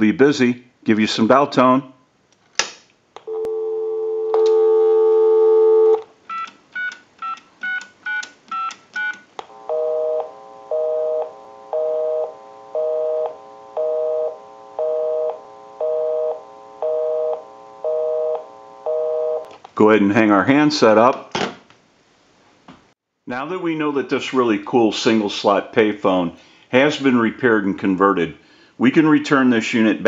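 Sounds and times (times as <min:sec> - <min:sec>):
phone dial tone: 0:03.2 - 0:19.5
busy signal beeping: 0:09.6 - 0:19.5.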